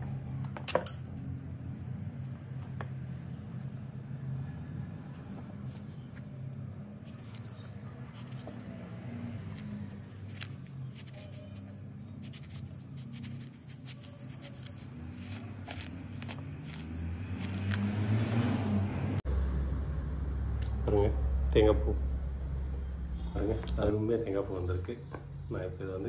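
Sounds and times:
metal blade scratching: 9.3s - 17.8s.

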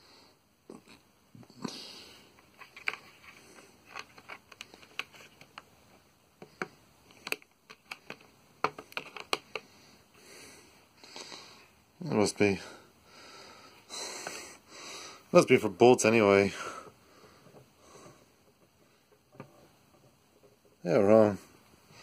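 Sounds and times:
clicks of plastic case and bits: 3.9s - 5.7s, 6.4s - 9.7s.

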